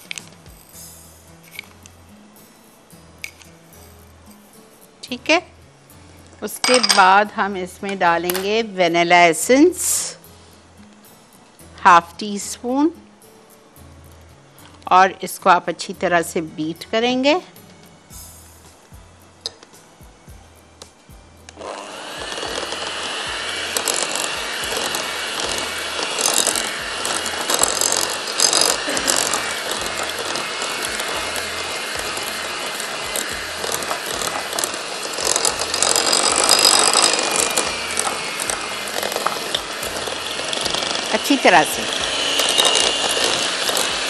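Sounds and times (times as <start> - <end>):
electric hand mixer whining: 21.6 - 44.0.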